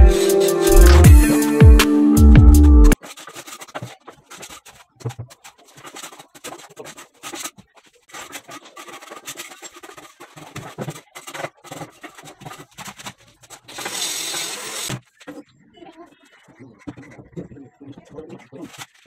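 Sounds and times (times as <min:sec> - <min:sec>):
background music: 0:00.0 - 0:03.0
hand tool scraping cement: 0:00.1 - 0:01.1, 0:02.9 - 0:15.4.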